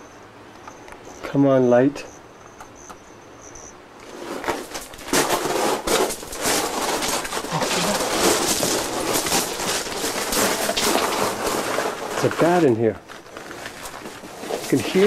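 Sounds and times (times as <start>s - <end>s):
movement over loose gravel: 4.0s - 15.0s.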